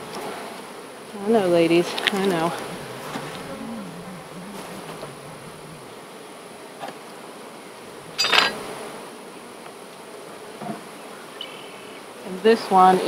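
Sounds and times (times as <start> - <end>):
honey bees buzzing: 1.4 - 6.3.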